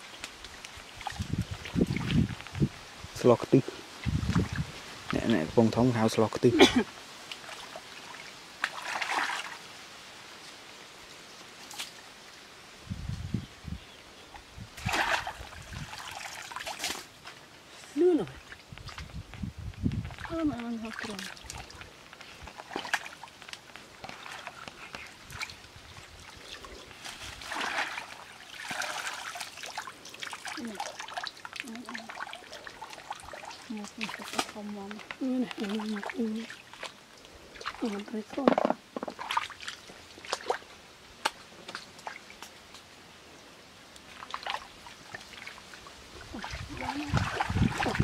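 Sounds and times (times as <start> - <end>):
feet splashing through muddy water: 7.3 - 9.6, 14.8 - 17.1, 20.2 - 38.1, 39.2 - 40.7, 44.1 - 48.0.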